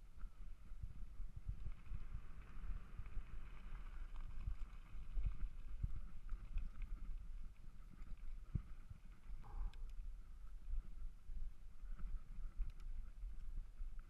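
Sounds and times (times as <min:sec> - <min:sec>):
bike rolling over dirt: 0:00.2 - 0:09.5.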